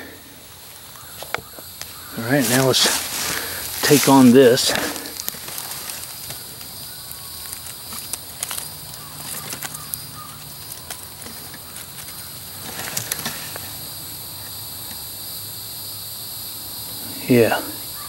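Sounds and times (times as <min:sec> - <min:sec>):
rustling in leaf litter: 0:00.0 - 0:14.2
high insect drone: 0:00.0 - 0:18.0.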